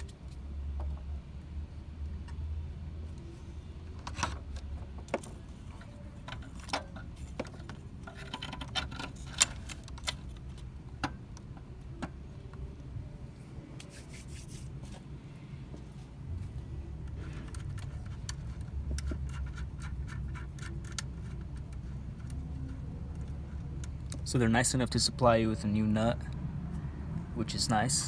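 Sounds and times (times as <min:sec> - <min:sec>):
metallic clicks and knocks: 0:03.9 - 0:12.6, 0:17.0 - 0:24.3
metal scraping and rubbing: 0:05.4 - 0:10.6, 0:17.1 - 0:23.7.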